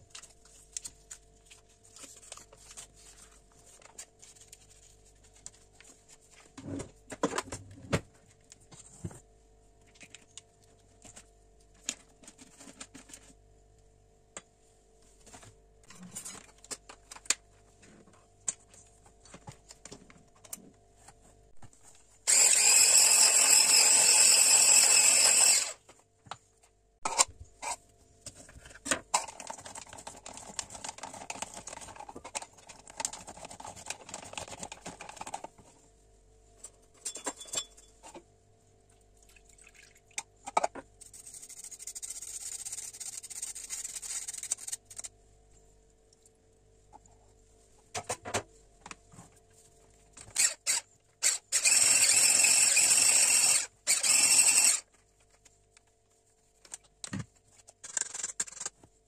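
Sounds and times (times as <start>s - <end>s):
electric hand mixer running: 22.3s - 25.8s, 51.6s - 54.8s.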